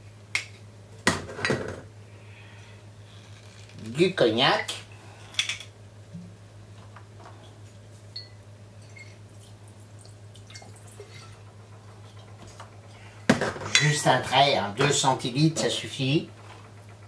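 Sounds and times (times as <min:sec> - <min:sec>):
steady low hum: 0:00.0 - 0:17.0
liquid trickling and dripping: 0:08.3 - 0:12.4.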